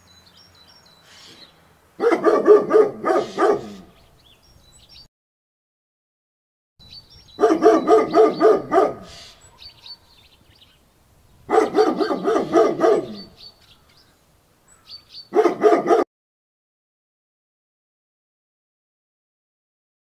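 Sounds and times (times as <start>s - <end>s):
dog barking rapidly: 2.0s - 3.9s, 7.4s - 10.0s, 11.5s - 13.3s, 15.3s - 16.1s.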